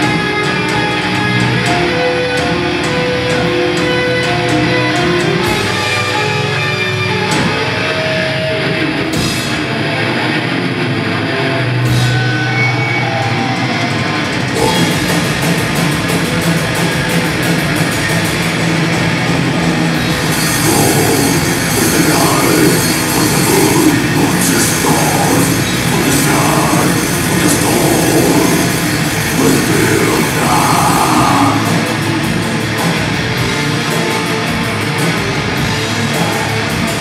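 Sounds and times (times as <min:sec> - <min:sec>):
distorted electric guitars riffing: 0:00.0 - 0:37.0
metal vocals: 0:11.3 - 0:16.2, 0:19.9 - 0:32.8
fast drum beat: 0:14.5 - 0:37.0.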